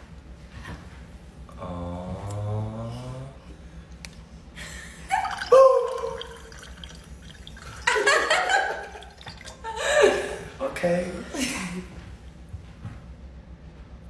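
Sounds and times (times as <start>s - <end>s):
people exclaiming: 5.1s - 6.5s
tap water splashing into glass: 5.2s - 9.6s.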